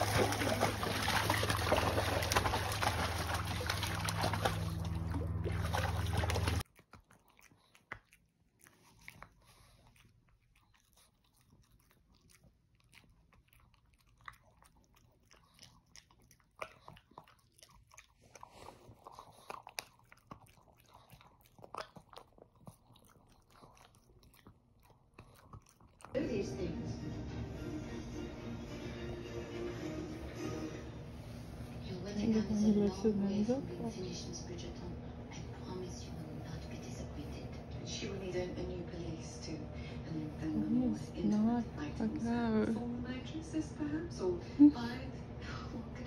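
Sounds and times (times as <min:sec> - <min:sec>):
dog splashing in water: 0:00.0 - 0:06.6
dog chewing and crunching: 0:00.0 - 0:26.2
steady low hum: 0:30.0 - 0:46.0.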